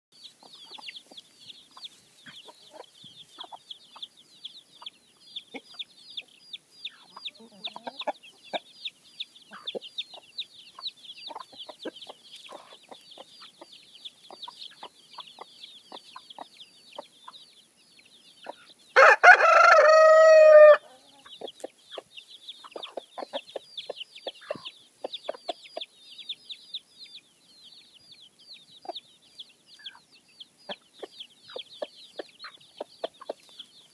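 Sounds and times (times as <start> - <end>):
chicks peeping: 0.2 - 33.9
hens clucking: 0.3 - 17.4, 19.5 - 26.0, 30.7 - 33.9
rooster crowing: 19.0 - 21.0.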